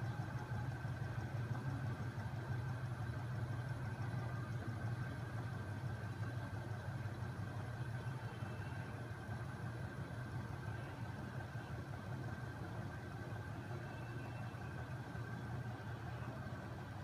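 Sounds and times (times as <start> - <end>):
flywheel machine humming: 0.0 - 17.0.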